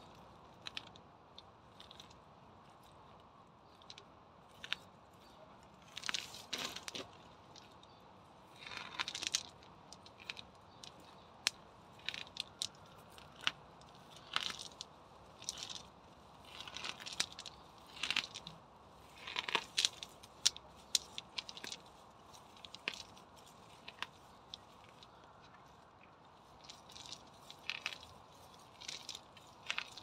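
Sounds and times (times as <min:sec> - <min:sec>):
roots tearing out of soil: 0:03.6 - 0:30.0
leaves and stems rustling: 0:08.5 - 0:30.0.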